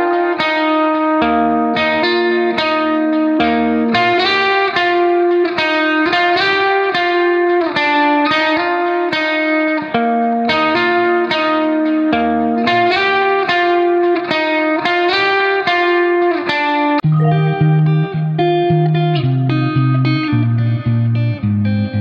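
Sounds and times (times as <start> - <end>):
plucked instrumental melody: 17.0 - 20.3.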